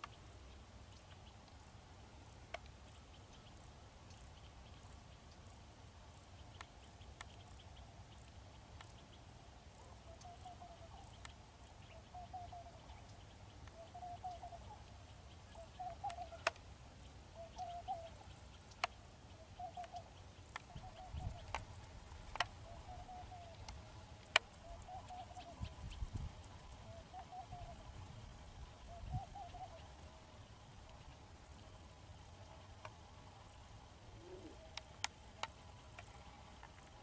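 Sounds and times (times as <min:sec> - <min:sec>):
bird warbling call: 0:09.7 - 0:11.2, 0:11.8 - 0:13.1, 0:13.7 - 0:16.6, 0:17.4 - 0:18.4, 0:19.3 - 0:21.6, 0:22.5 - 0:23.6, 0:24.6 - 0:26.2, 0:26.8 - 0:27.9, 0:28.8 - 0:29.9
sharp clicks: 0:19.7 - 0:22.6.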